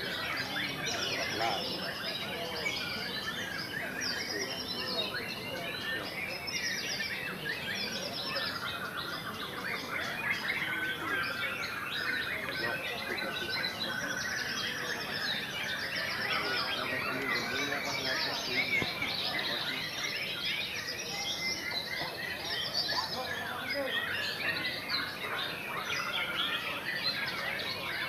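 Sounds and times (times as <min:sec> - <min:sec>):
many birds singing: 0:00.0 - 0:28.0.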